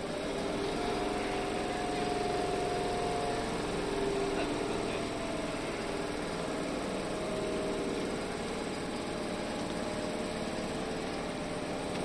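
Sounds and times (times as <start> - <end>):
electric train mechanical hum: 0.0 - 12.0.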